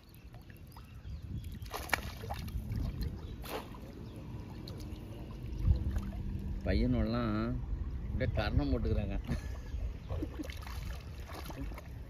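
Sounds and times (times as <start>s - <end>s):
water sloshing around wading person: 0.0s - 6.7s, 9.2s - 12.0s
water splashes: 0.0s - 7.3s, 9.0s - 12.0s.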